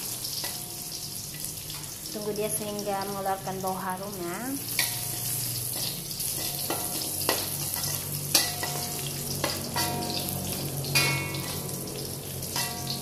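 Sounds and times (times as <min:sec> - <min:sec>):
metal spatula scraping and knocking wok: 0:00.0 - 0:01.9, 0:04.7 - 0:13.0
garlic sizzling in oil: 0:00.0 - 0:13.0.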